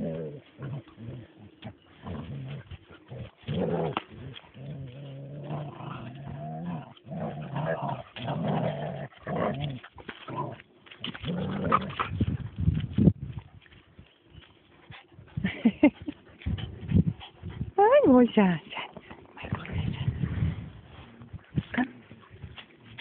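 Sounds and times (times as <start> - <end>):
dogs growling: 0.0 - 12.3.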